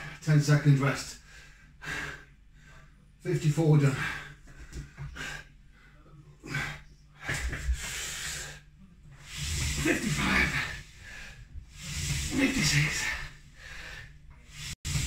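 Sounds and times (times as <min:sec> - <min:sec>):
man exhaling forcefully: 0:09.2 - 0:15.0.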